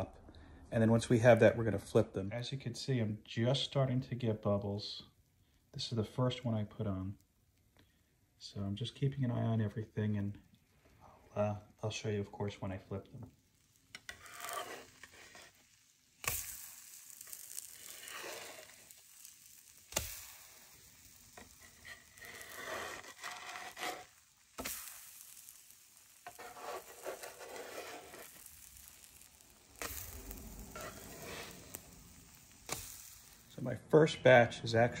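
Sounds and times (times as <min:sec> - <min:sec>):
batter sizzling on a griddle: 0:11.8 - 0:33.7.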